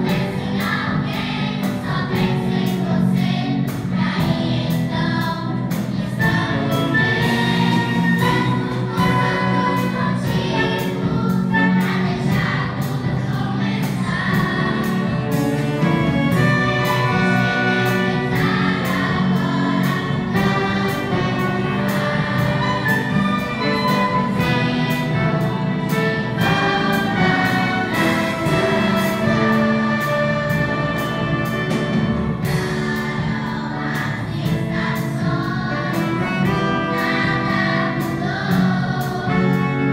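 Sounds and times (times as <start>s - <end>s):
drum kit steady beat: 0.0s - 39.9s
large choir singing: 0.0s - 39.9s
orchestra of strings and brass: 0.0s - 39.9s.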